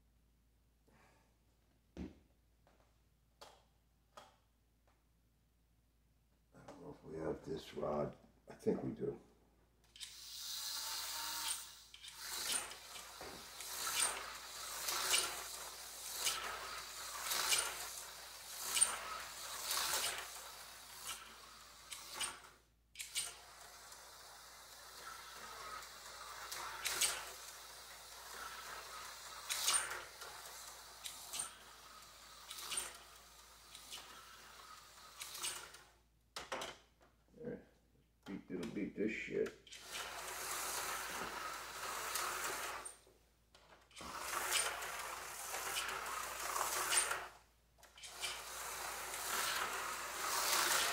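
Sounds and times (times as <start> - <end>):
slot car motor whirring: 10.0 - 36.0, 39.7 - 43.0, 43.9 - 50.9
slot car clacking on track: 12.1 - 22.4, 44.1 - 47.3, 48.1 - 50.9.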